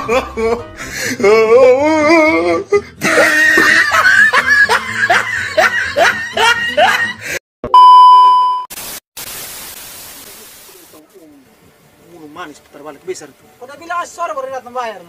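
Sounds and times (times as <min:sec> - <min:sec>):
person laughing: 0:03.0 - 0:07.3
test pattern beep: 0:07.6 - 0:08.7
tv static hiss: 0:08.7 - 0:15.0.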